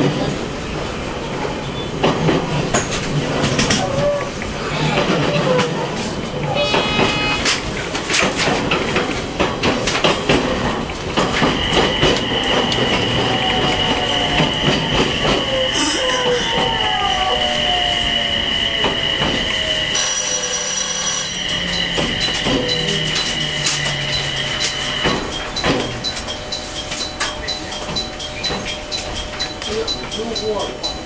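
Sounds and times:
wheels clicking over rail joints: 2.0 - 16.8
warning alarm: 6.4 - 7.7, 11.2 - 31.0
high wheel squeal: 11.5 - 28.8.

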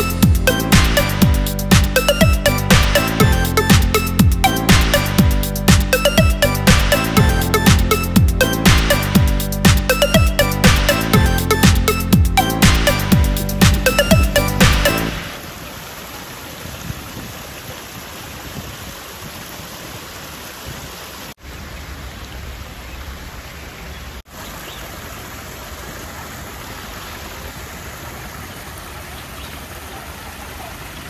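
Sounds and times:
background music: 0.0 - 15.3
waterfall splashing into pond: 12.4 - 31.0.

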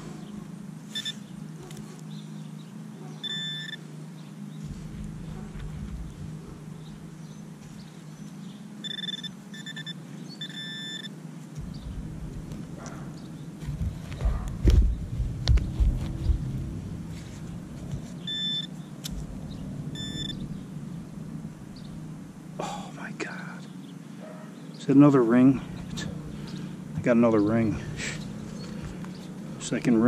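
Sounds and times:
metal detector high beeps: 0.9 - 1.2, 3.2 - 3.8, 8.8 - 11.1, 18.3 - 18.7, 20.0 - 20.4
heavy thuds and knocks: 4.6 - 7.8, 11.6 - 16.8.

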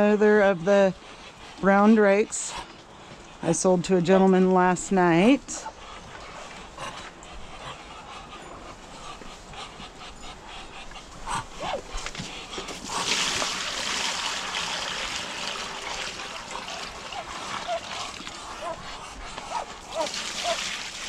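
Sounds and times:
ducks calling: 0.0 - 13.2, 14.3 - 20.8
water pouring into a pan: 12.9 - 17.8, 20.0 - 21.0.

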